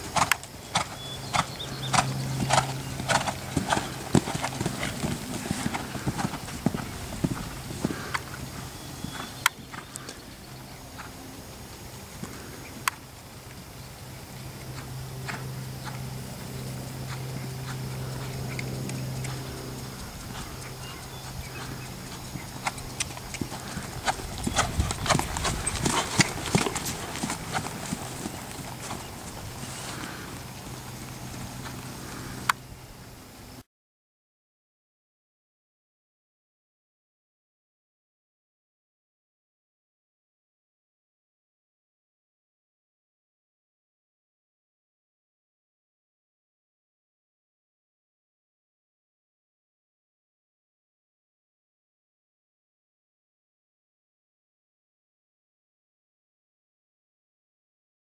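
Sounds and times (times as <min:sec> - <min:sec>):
horse hoofbeats on sand: 0:00.0 - 0:11.2, 0:17.0 - 0:32.5.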